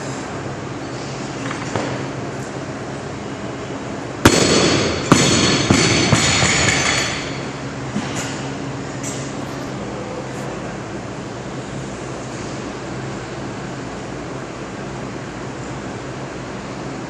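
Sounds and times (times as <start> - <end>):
barbell plates bouncing: 4.3 - 7.5
barbell crashing onto platform: 4.3 - 7.6.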